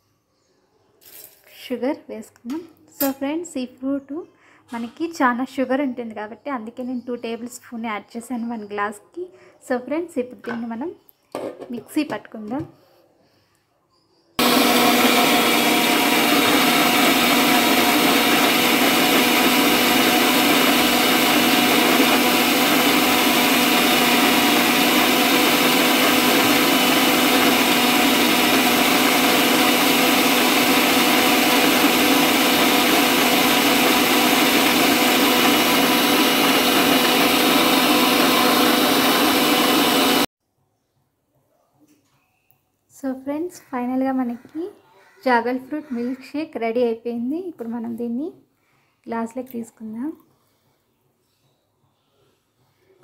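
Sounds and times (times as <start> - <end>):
mixer grinder motor running: 14.4 - 40.3.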